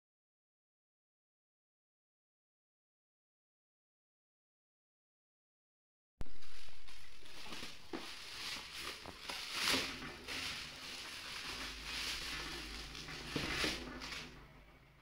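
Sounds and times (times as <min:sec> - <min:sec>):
plastic bag rustling: 0:06.2 - 0:15.0.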